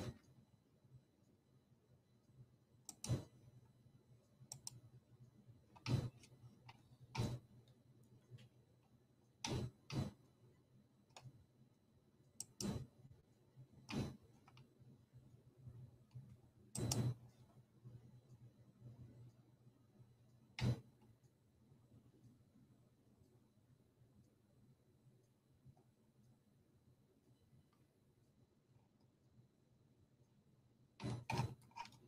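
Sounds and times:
faint low hum: 0:00.0 - 0:32.0
computer mouse clicking: 0:02.8 - 0:03.4, 0:04.5 - 0:04.8, 0:05.7 - 0:08.5, 0:09.4 - 0:10.3, 0:11.0 - 0:11.4, 0:12.4 - 0:12.9, 0:13.8 - 0:14.7, 0:16.1 - 0:17.5, 0:20.6 - 0:21.3, 0:31.0 - 0:32.0.

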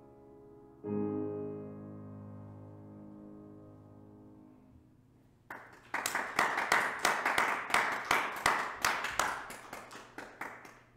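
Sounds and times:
piano chord: 0:00.0 - 0:05.2
hand clapping: 0:05.5 - 0:10.9.

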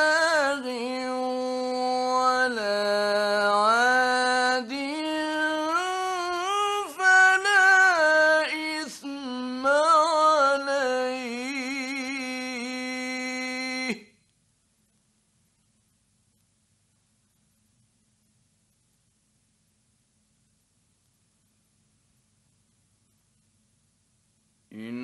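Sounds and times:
man reciting melodically: 0:00.0 - 0:14.2, 0:24.7 - 0:25.0.

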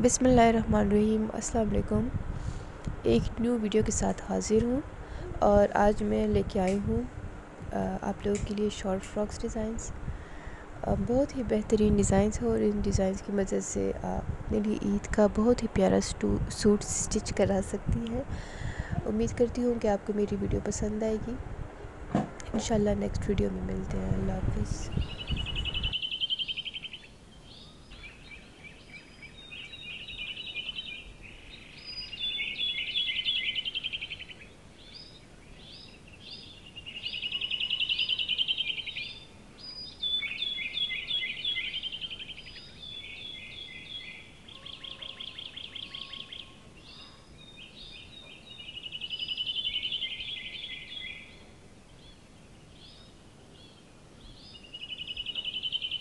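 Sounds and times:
bird trilling song: 0:24.8 - 0:56.0.

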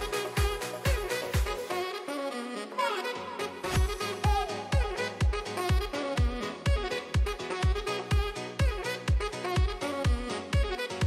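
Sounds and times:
kick-drum beat: 0:00.0 - 0:01.6, 0:03.8 - 0:10.8
horn playing jazzy lead: 0:00.0 - 0:11.0.

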